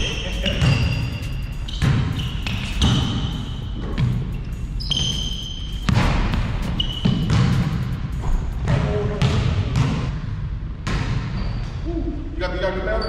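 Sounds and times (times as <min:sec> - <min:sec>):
sneakers squeaking on floor: 0:00.0 - 0:10.0, 0:10.9 - 0:11.8
basketball bouncing on court: 0:00.0 - 0:10.2, 0:10.8 - 0:11.6.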